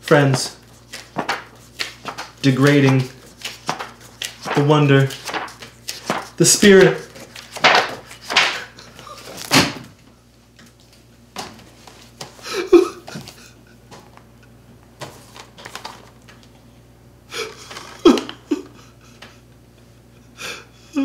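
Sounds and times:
man sobbing: 0:12.4 - 0:13.8, 0:17.3 - 0:19.5, 0:20.1 - 0:21.0.

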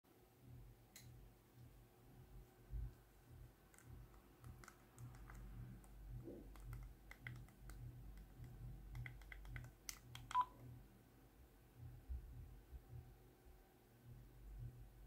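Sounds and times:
keypad tones: 0:08.9 - 0:10.6.

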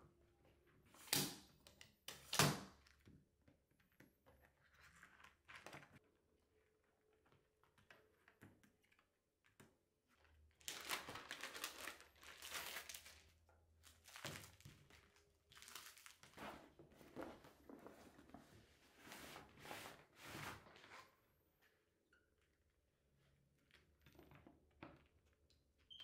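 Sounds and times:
plastic cover crinkling: 0:10.6 - 0:18.3.

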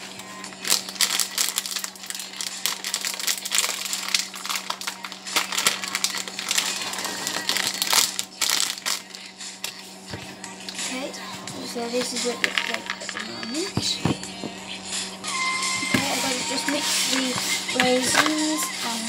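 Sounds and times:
steady low hum: 0:00.0 - 0:19.0
plastic packet crinkling: 0:00.6 - 0:09.2.

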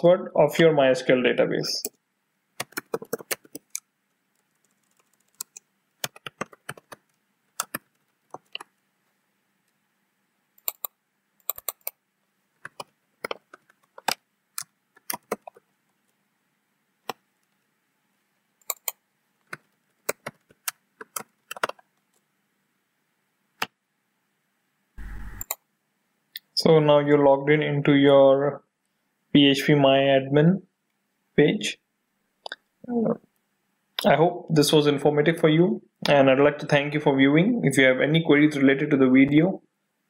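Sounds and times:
keyboard typing clicks: 0:02.6 - 0:03.8, 0:04.4 - 0:08.6, 0:10.6 - 0:11.9, 0:18.6 - 0:21.8, 0:25.0 - 0:25.6.

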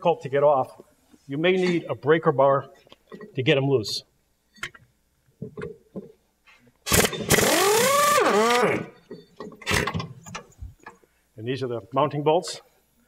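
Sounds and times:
air impact wrench whine: 0:06.9 - 0:10.1.

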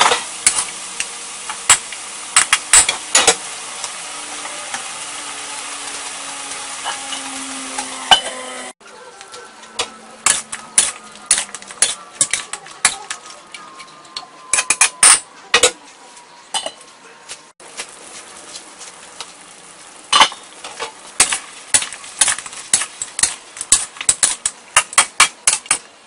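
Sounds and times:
chicken wings sizzling in a wok: 0:00.0 - 0:13.6, 0:17.6 - 0:26.0
spatula scraping a wok: 0:01.4 - 0:08.7, 0:09.8 - 0:13.0
metal lid clanking: 0:06.8 - 0:08.7.

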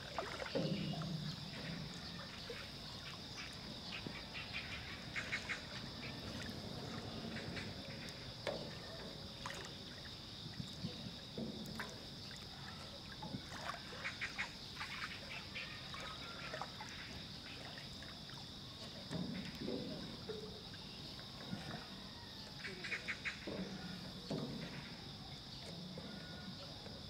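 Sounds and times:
high insect chorus: 0:00.0 - 0:27.0
water lapping: 0:00.0 - 0:27.0.

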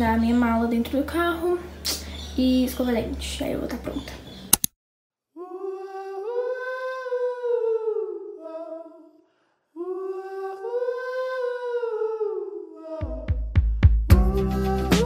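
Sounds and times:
person humming melody: 0:05.4 - 0:09.0, 0:09.8 - 0:13.5, 0:14.1 - 0:15.0.

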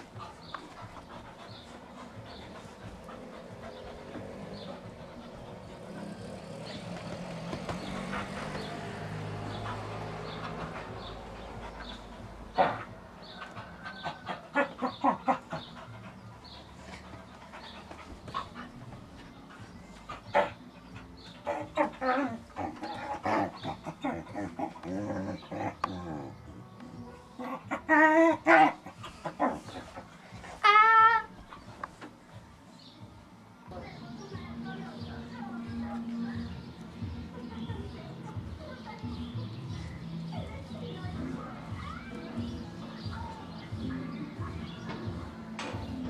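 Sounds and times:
dog panting: 0:00.0 - 0:32.2.

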